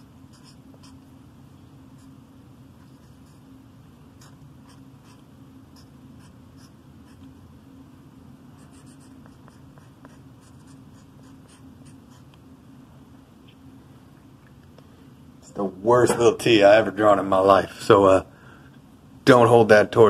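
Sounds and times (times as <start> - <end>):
steady low hum: 0.0 - 20.0
marker scratching on wood: 0.3 - 1.1, 2.8 - 3.5, 4.2 - 7.3, 8.6 - 12.4.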